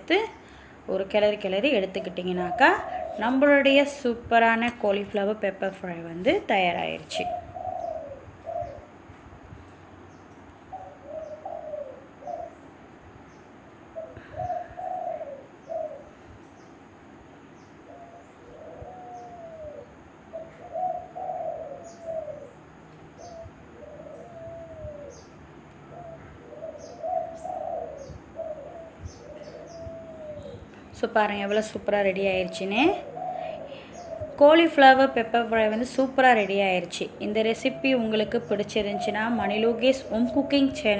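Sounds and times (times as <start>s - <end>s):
bird calling: 1.7s - 3.9s, 6.8s - 8.9s, 10.7s - 12.6s, 17.6s - 40.9s.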